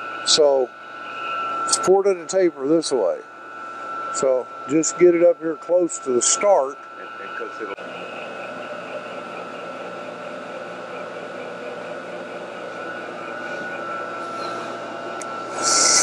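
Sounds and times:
milling machine motor hum and whine: 0:00.0 - 0:16.0.

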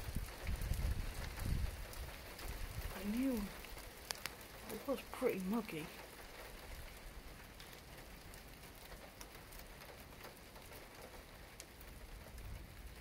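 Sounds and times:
faint steady rain: 0:00.0 - 0:13.0
raindrops ticking: 0:00.0 - 0:13.0.

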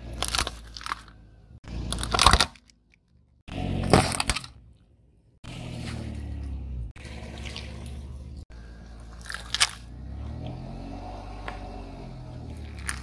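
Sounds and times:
tyre crushing plastic objects: 0:00.0 - 0:04.6, 0:12.6 - 0:13.0.

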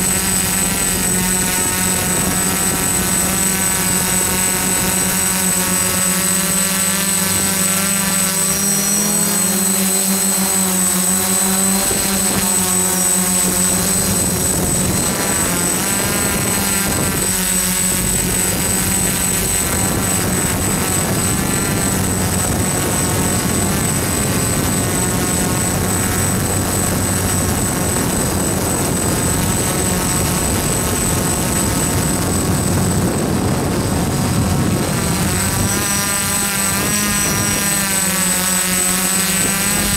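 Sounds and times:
drone propeller hum: 0:00.0 - 0:39.9.

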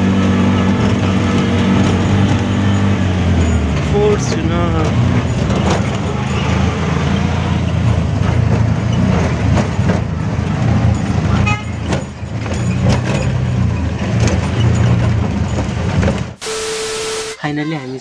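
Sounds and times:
auto-rickshaw engine running: 0:00.0 - 0:17.4
body knocks and rattles: 0:00.6 - 0:06.7, 0:07.8 - 0:16.4
short horn toot: 0:16.4 - 0:17.4.

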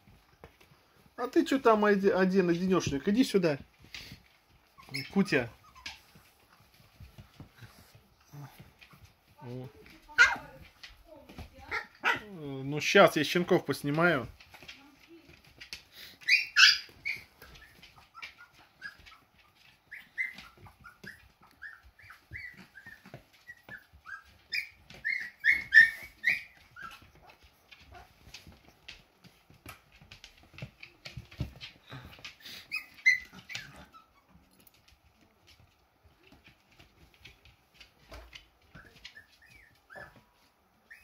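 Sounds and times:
puppies squeaking and whimpering: 0:04.6 - 0:06.8, 0:16.2 - 0:27.3, 0:32.4 - 0:34.6, 0:38.6 - 0:41.0.

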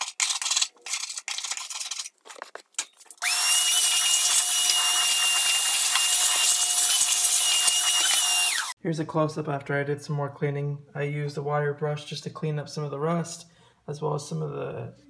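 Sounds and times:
hand tool scraping rusty metal: 0:00.0 - 0:08.4
small electric motor whining: 0:03.2 - 0:08.7.

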